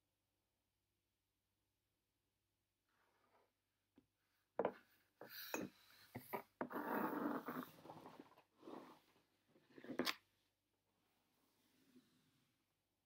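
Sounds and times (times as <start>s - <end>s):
plastic tube scraping on table: 5.6s - 9.1s.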